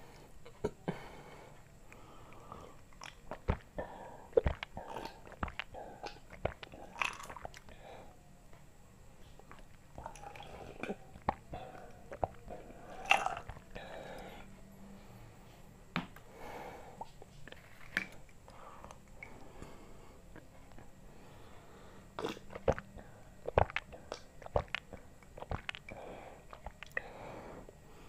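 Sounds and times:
person gulping and slurping: 0:02.3 - 0:07.8, 0:09.4 - 0:14.5, 0:22.2 - 0:27.1.

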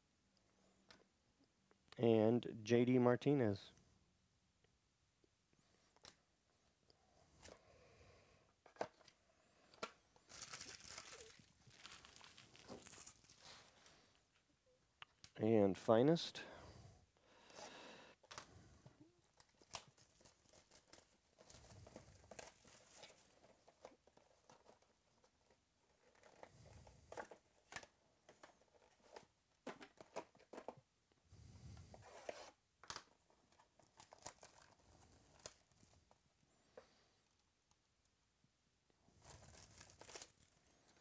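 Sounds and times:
plastic wrap tearing and crumpling: 0:10.2 - 0:13.8, 0:19.4 - 0:23.4, 0:33.5 - 0:36.0, 0:39.2 - 0:41.0.

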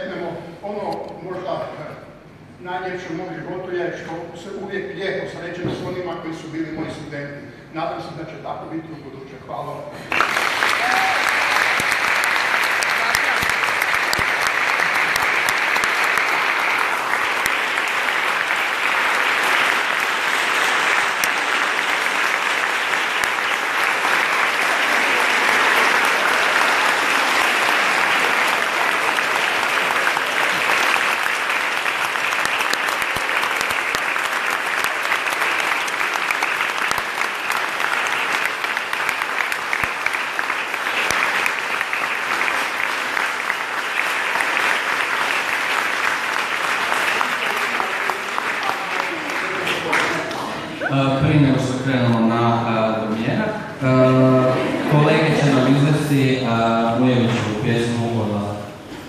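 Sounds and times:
large audience applauding: 0:10.0 - 0:51.9, 0:53.8 - 0:59.0.

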